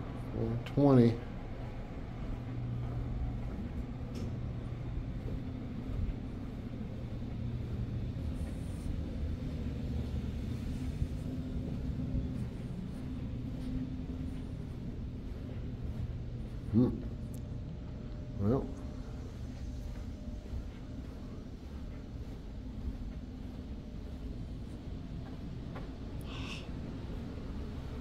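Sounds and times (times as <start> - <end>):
building background hum: 0.0 - 28.0
constant low tones: 0.0 - 28.0
footsteps on carpet: 1.2 - 27.8.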